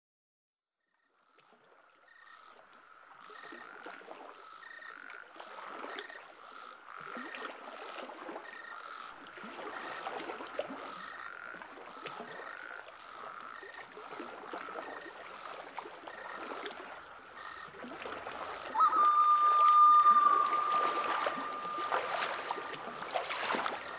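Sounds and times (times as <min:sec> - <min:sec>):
frogs calling in chorus: 0:02.1 - 0:14.0, 0:14.6 - 0:23.9
loud high-pitched call: 0:18.7 - 0:23.9.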